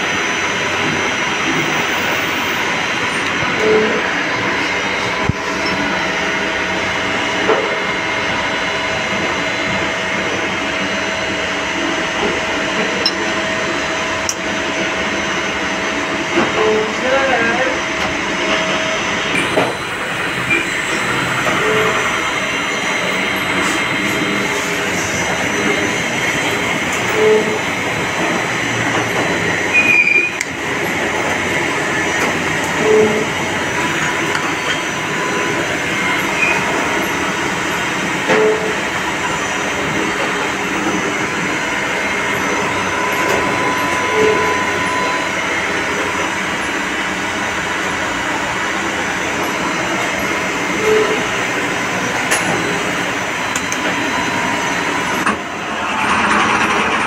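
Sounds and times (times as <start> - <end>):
machine shop machinery running: 0.0 - 57.0.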